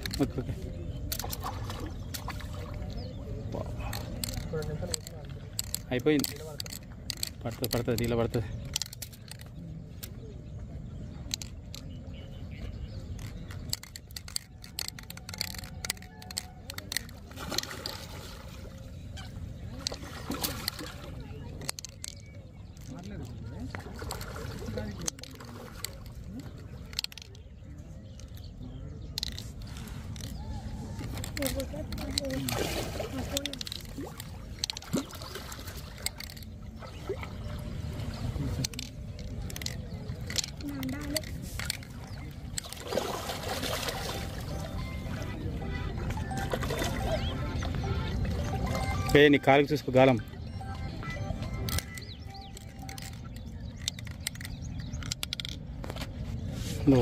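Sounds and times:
fishing line clicks: 0:00.0 - 0:18.6, 0:19.6 - 0:45.2, 0:46.2 - 0:56.2
fish splashing in water: 0:15.6 - 0:18.9, 0:19.7 - 0:21.4, 0:31.0 - 0:38.6, 0:40.0 - 0:44.7.

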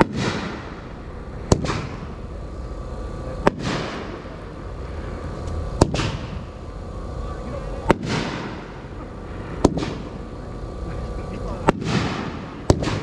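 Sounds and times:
firework bangs: 0:00.0 - 0:02.2, 0:03.4 - 0:04.4, 0:05.8 - 0:06.5, 0:07.8 - 0:10.2, 0:11.6 - 0:13.0
firework hissing tail: 0:00.0 - 0:13.0.

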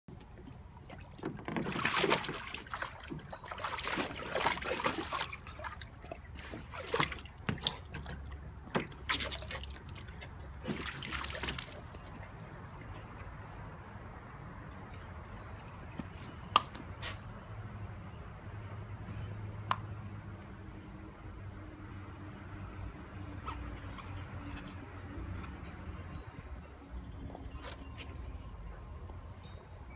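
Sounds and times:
water splashing in pool: 0:00.9 - 0:07.9, 0:08.7 - 0:12.0.

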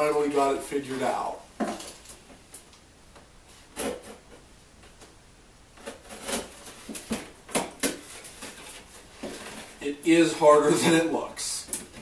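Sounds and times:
knife scraping cardboard box: 0:05.8 - 0:07.2.

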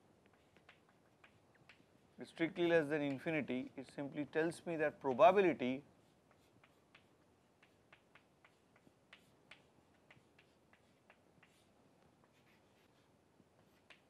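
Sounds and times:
chalk tapping on chalkboard: 0:00.2 - 0:02.0, 0:05.1 - 0:14.0.

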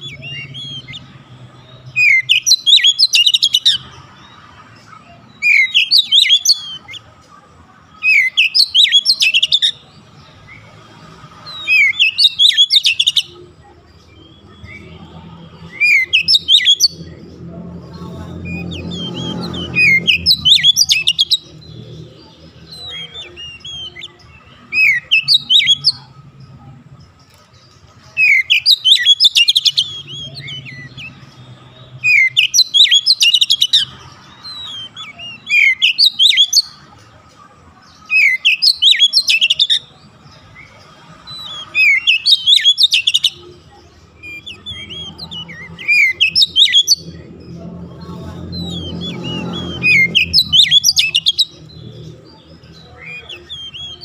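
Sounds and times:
songbird singing whistles: 0:01.8 - 0:03.9, 0:05.4 - 0:07.0, 0:08.0 - 0:09.8, 0:11.4 - 0:13.4, 0:15.6 - 0:17.2, 0:18.4 - 0:21.6, 0:22.7 - 0:26.1, 0:28.2 - 0:36.8, 0:38.1 - 0:43.4, 0:44.2 - 0:47.2, 0:48.7 - 0:52.0, 0:52.8 - 0:54.0.

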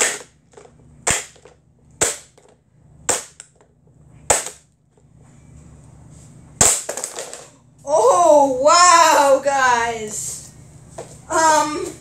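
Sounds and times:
hammer smashing plastic: 0:01.0 - 0:02.5, 0:06.6 - 0:07.4.

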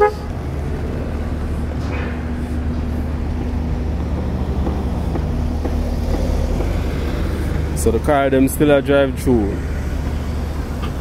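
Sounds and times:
vehicle horn toot: 0:00.0 - 0:00.3
road traffic rumble: 0:00.0 - 0:11.0.

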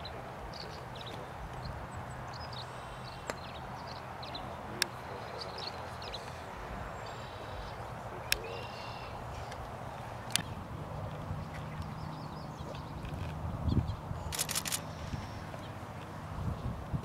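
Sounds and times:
small birds chirping: 0:00.0 - 0:16.8
sharp clicks: 0:14.3 - 0:14.8.

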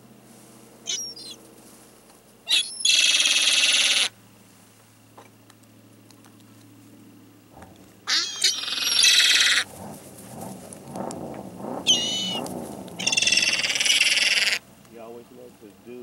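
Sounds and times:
faint low hum: 0:00.0 - 0:16.0
gulls calling: 0:00.9 - 0:01.4, 0:02.5 - 0:04.2, 0:08.0 - 0:10.0, 0:11.8 - 0:14.7.

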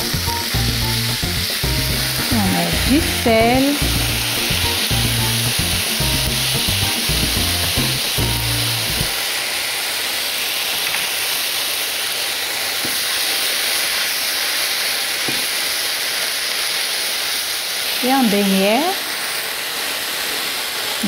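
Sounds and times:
background music with bass: 0:00.0 - 0:09.1
greens sizzling in a frying pan: 0:00.0 - 0:21.0.

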